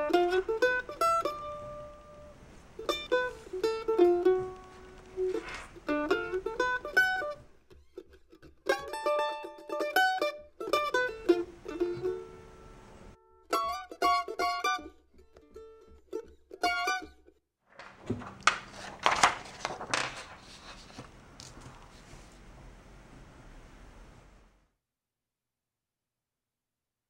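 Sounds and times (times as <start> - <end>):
plucked string music: 0.0 - 17.4
paper rustling and scraping: 4.5 - 6.2, 17.7 - 22.6.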